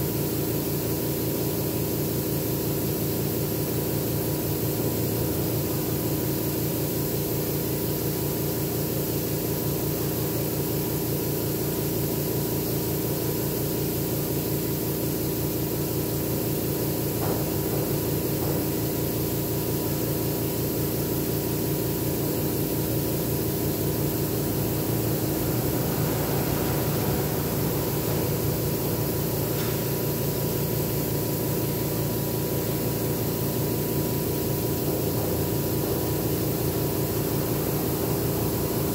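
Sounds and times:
air compressor humming: 0.0s - 38.9s.

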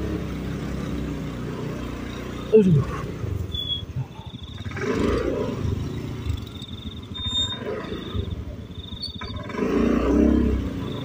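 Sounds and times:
scooter engine revving: 0.0s - 11.0s
insects chirping: 3.4s - 11.0s.

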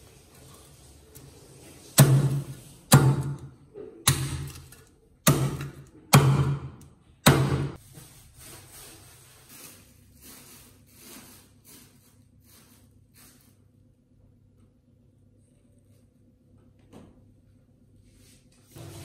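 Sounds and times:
cleaver chopping on wooden block: 2.0s - 3.5s, 5.2s - 7.8s
faint handling sounds: 7.8s - 13.7s.

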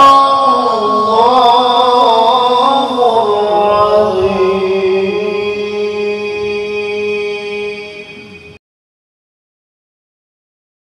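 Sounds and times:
man chanting: 0.0s - 8.6s.

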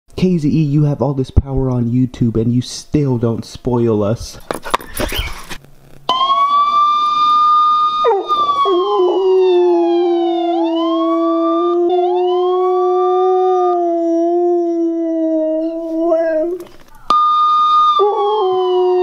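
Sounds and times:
siren from portable speaker: 6.1s - 13.8s, 17.1s - 19.0s
dog howling: 6.6s - 19.0s.

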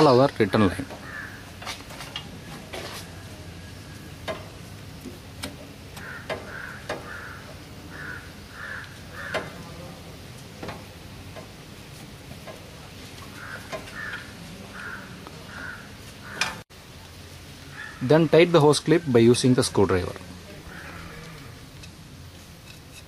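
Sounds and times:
crows cawing: 0.5s - 1.7s, 6.0s - 9.9s, 13.2s - 16.6s, 17.7s - 18.5s, 20.6s - 21.7s.

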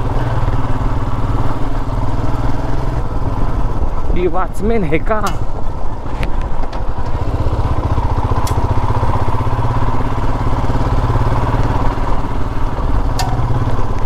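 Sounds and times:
motorcycle engine running: 0.0s - 14.0s
sharp clicks: 13.2s - 14.0s.

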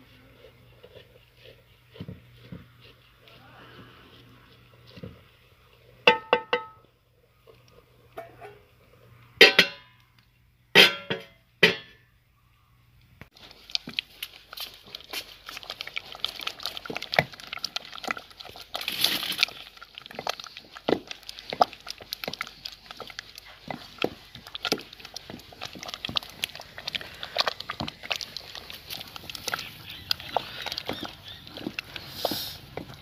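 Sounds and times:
masher squelching thick greens: 0.0s - 6.0s, 13.3s - 33.0s.

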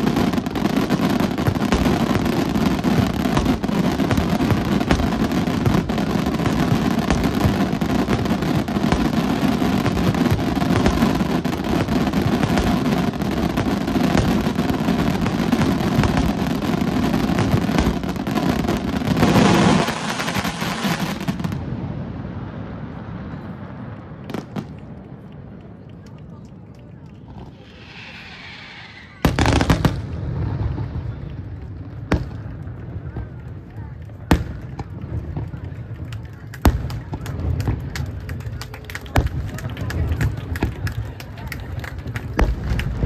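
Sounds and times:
fireworks bursting and crackling: 0.0s - 43.0s.

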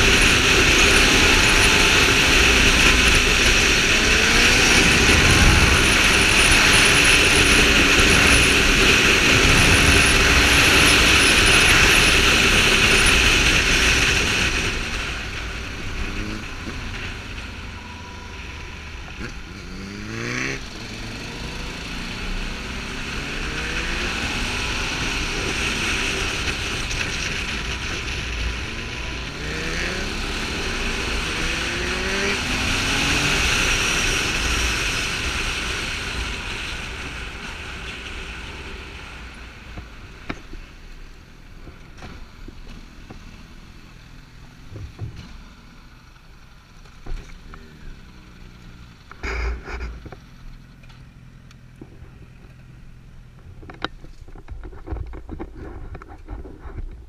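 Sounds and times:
wind rush: 0.0s - 15.8s
motorcycle engine accelerating: 0.0s - 57.0s.

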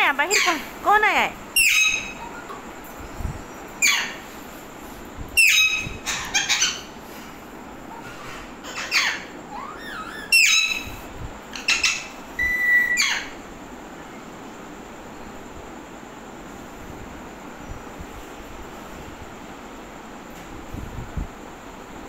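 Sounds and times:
parakeets screeching: 0.2s - 0.7s, 1.5s - 2.5s, 3.8s - 4.2s, 5.4s - 7.0s, 7.9s - 13.4s
whistled note: 12.4s - 13.2s.

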